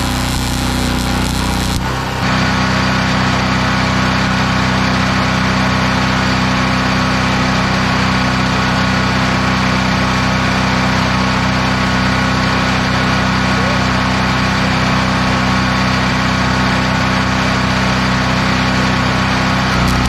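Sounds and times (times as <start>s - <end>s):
small engine humming: 0.0s - 3.9s, 18.2s - 20.0s.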